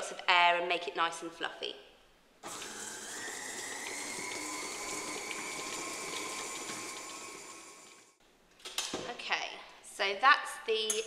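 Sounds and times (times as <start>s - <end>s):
stand mixer motor whining: 2.4s - 8.2s.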